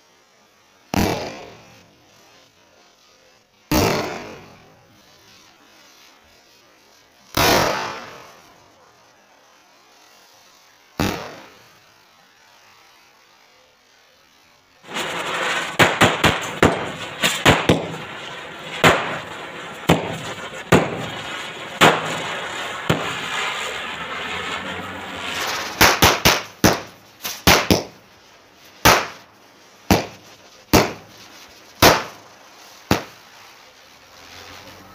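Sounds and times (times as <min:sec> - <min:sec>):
ground firework hissing: 0:00.0 - 0:34.9
firecrackers banging: 0:03.7 - 0:04.8, 0:07.3 - 0:08.5, 0:14.8 - 0:34.9.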